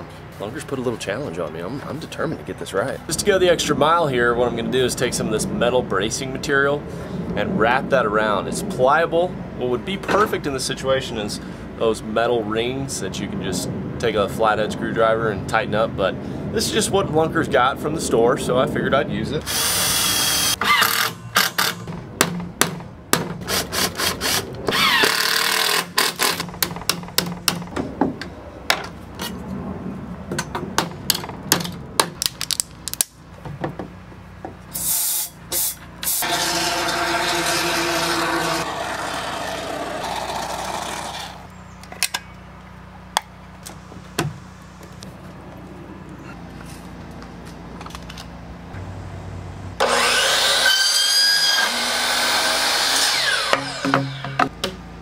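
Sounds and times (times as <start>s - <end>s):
cordless drill whirring: 19.5s - 21.7s.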